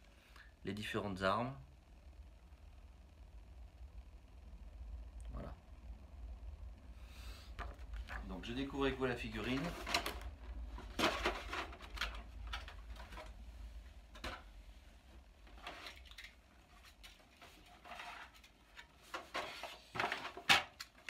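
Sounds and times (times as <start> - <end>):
plastic packaging clicks and knocks: 9.4 - 13.4, 14.1 - 14.5, 18.8 - 21.0.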